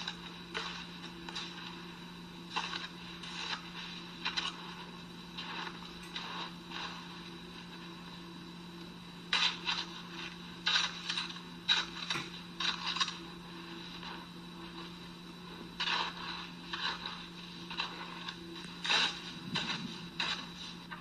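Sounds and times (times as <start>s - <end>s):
steady low hum: 0.0s - 21.0s
shovel scraping snow: 15.8s - 17.2s, 17.8s - 20.6s.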